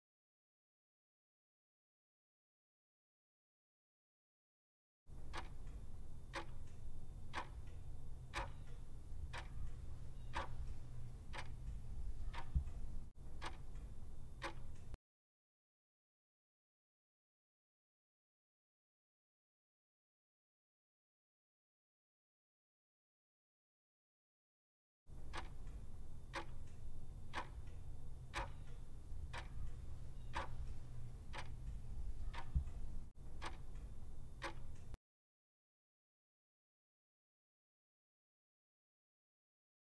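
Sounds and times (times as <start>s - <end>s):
low steady hum: 5.1s - 15.0s, 25.1s - 35.0s
clock ticking: 5.2s - 15.0s, 25.2s - 35.0s.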